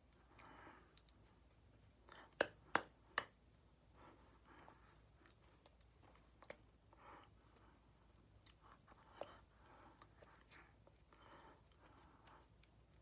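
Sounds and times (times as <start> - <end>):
hand slaps: 2.3 - 3.4.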